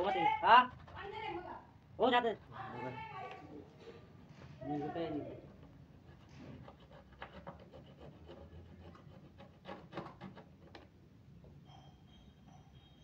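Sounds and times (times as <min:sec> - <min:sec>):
hand saw rasping through plastic: 0:05.9 - 0:10.8.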